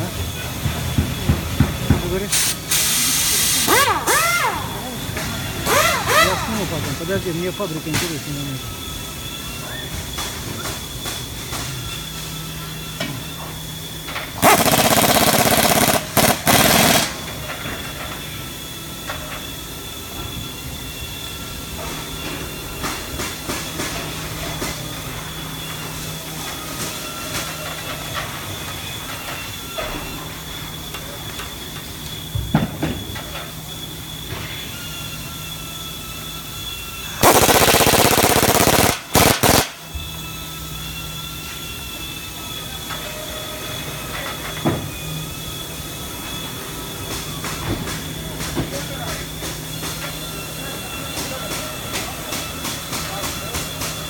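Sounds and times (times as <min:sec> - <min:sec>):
factory hum: 0:00.0 - 0:54.0
air tool hammering on steel: 0:01.0 - 0:04.5, 0:14.4 - 0:17.2, 0:37.2 - 0:39.9
pneumatic impact wrench rattling: 0:02.3 - 0:04.7, 0:05.6 - 0:06.6, 0:14.4 - 0:17.2, 0:37.2 - 0:39.8.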